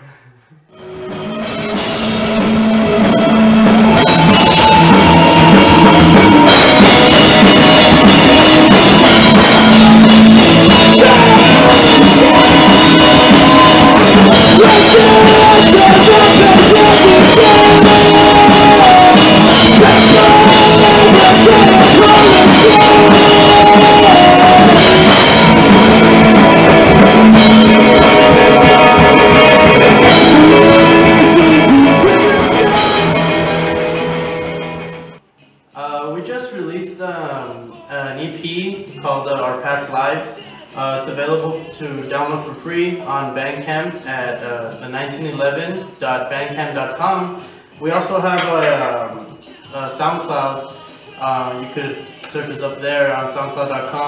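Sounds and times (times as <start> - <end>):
alternative rock band playing: 0.7 - 35.2.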